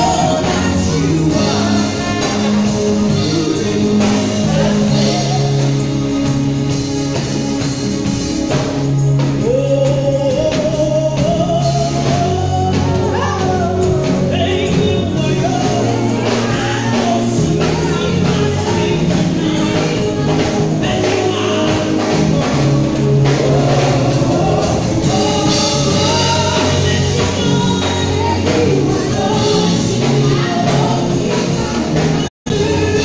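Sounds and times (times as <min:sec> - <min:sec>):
gospel band playing: 0:00.0 - 0:33.0
woman singing into a microphone: 0:25.0 - 0:33.0.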